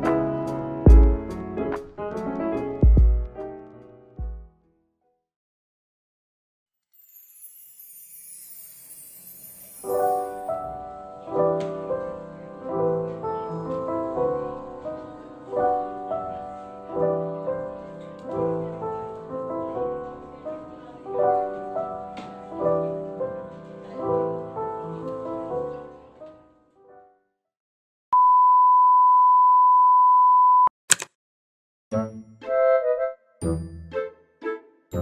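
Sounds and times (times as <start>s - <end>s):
melodic background music: 0.0s - 4.5s, 31.9s - 35.0s.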